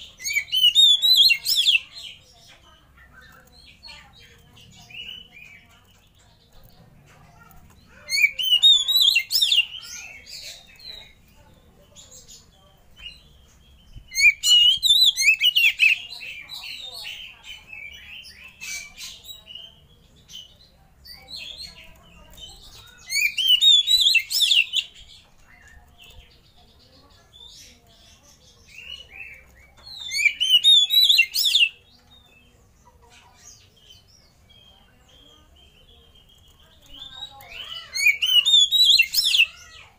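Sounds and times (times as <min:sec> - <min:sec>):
soft bird calls: 0:00.0 - 0:39.9
bird singing fast varied notes: 0:13.2 - 0:19.8.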